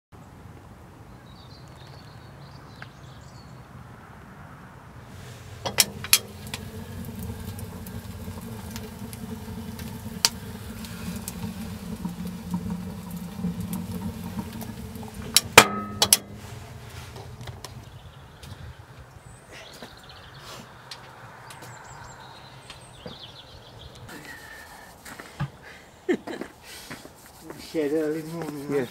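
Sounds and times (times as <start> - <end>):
fire rumbling in firebox: 4.9 - 24.3
sharp metallic clanks: 5.6 - 6.6, 15.2 - 16.5.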